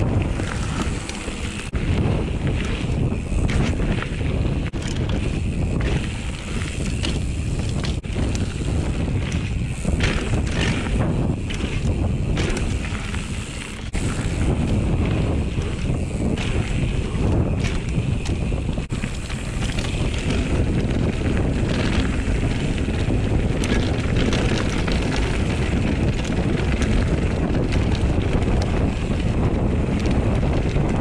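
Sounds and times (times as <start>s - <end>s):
tyres crunching on gravel: 0.0s - 30.6s
bike rattling over bumps: 0.0s - 31.0s
wind rushing over microphone: 0.0s - 31.0s.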